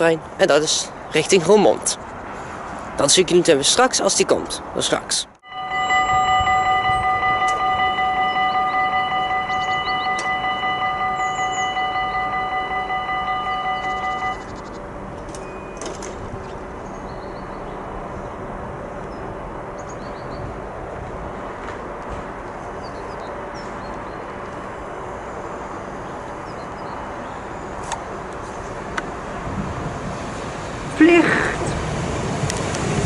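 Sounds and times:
level crossing bell ringing: 0:05.4 - 0:14.5
electric train approaching: 0:05.4 - 0:33.0.

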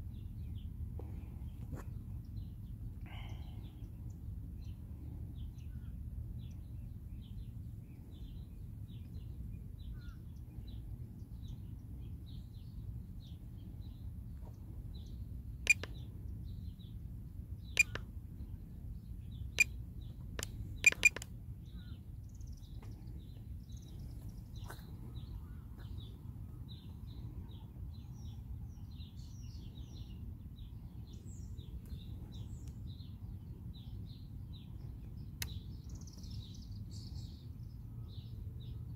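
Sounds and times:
low steady rumble: 0:00.0 - 0:38.9
small birds chirping: 0:00.0 - 0:38.9
sharp clicks: 0:15.7 - 0:16.0, 0:17.8 - 0:18.1, 0:19.6 - 0:21.3.

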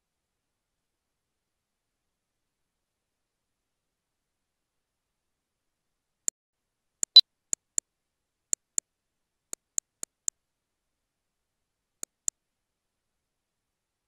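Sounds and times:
computer mouse clicks: 0:07.0 - 0:07.8, 0:08.6 - 0:08.8, 0:09.6 - 0:10.3, 0:12.0 - 0:12.3.

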